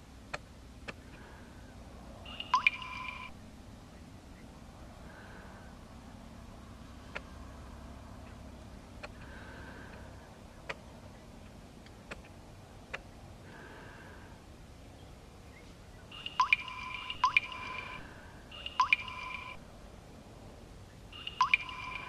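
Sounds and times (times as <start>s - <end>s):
drops plinking into water: 2.3s - 3.3s, 16.2s - 19.6s, 21.2s - 22.0s
water drops dripping: 2.3s - 3.3s, 16.2s - 19.6s, 21.2s - 22.0s.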